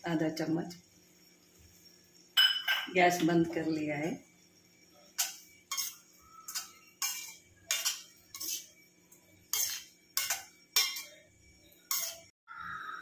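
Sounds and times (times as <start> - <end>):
spatula scraping steel pan: 5.2 - 8.8, 9.5 - 11.2, 11.9 - 12.3.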